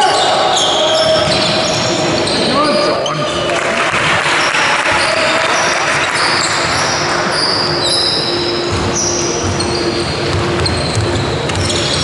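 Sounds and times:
sneakers squeaking on court: 0.0 - 3.5, 6.3 - 12.0
basketball bouncing: 8.7 - 12.0.

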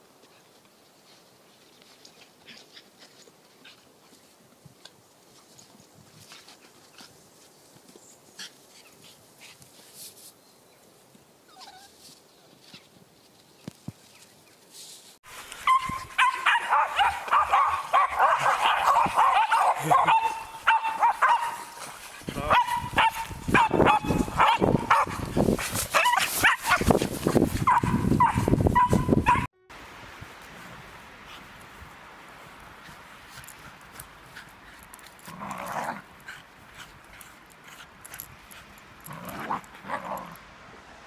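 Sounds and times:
puppies barking and yipping: 15.6 - 29.5.

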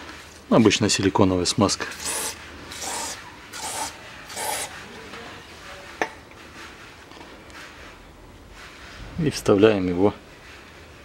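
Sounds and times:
aerosol can spraying: 1.9 - 4.8.

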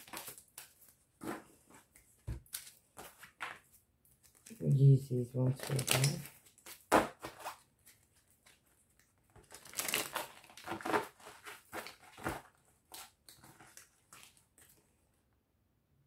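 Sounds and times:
cards rustling and tapping: 0.0 - 4.6.

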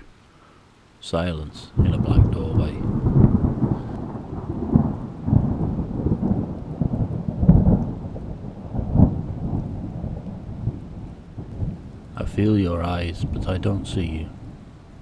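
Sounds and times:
steady rain: 0.0 - 15.0
thunder rolling: 1.6 - 15.0.

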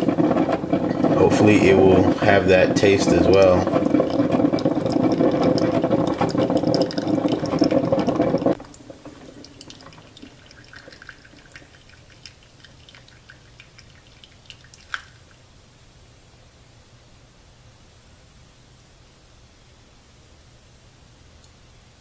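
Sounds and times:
coffee maker brewing: 0.0 - 15.5.

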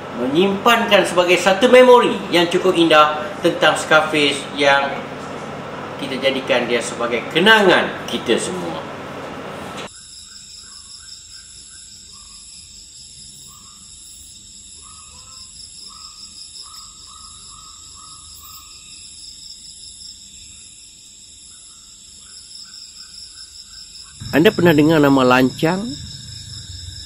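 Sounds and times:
high-pitched insect chorus: 9.9 - 27.0.

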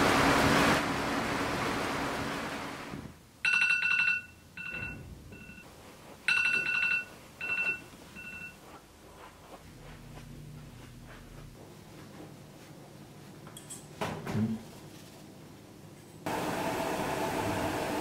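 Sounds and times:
electronic ringing tone: 3.5 - 5.6, 6.3 - 8.6.

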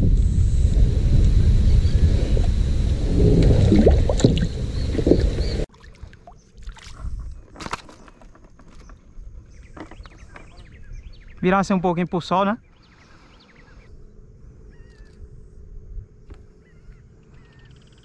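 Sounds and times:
wind rumbling on microphone: 0.0 - 5.7, 6.6 - 7.6, 8.7 - 11.8, 13.6 - 18.0
water sounds: 2.0 - 8.2.

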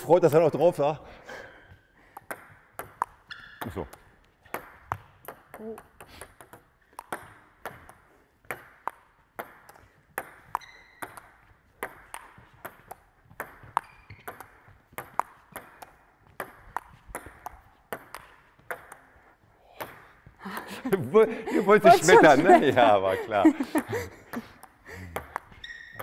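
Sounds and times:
table tennis ball clicking: 2.2 - 20.0, 24.4 - 26.0.

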